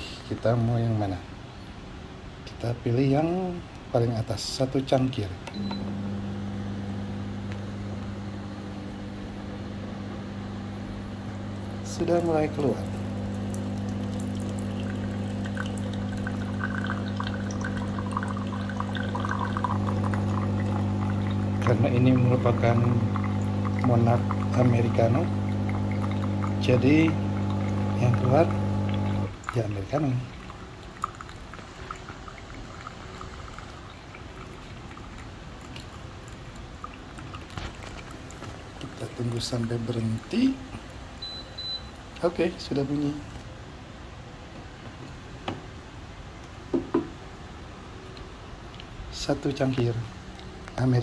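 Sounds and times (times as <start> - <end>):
coffee machine humming: 5.5 - 43.2
coffee pouring into glass: 5.9 - 40.6
gurgling and bubbling: 12.5 - 29.6.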